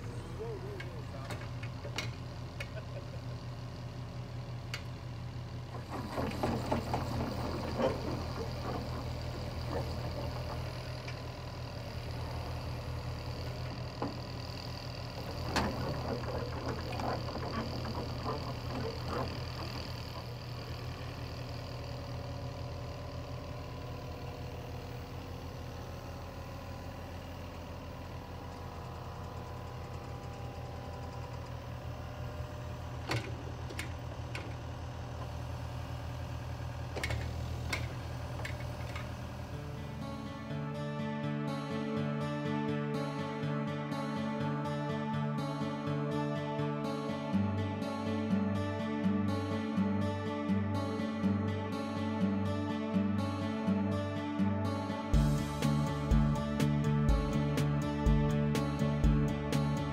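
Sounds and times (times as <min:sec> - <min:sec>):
diesel engine running: 0:00.0 - 0:59.9
tracks rattling and clanking: 0:05.6 - 0:11.4, 0:15.1 - 0:20.5.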